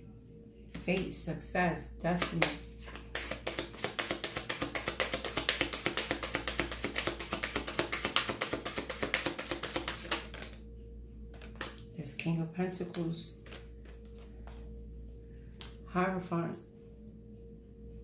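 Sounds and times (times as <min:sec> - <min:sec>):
soft background music: 0:00.0 - 0:18.0
cards being shuffled by hand: 0:02.2 - 0:10.6, 0:11.3 - 0:11.8.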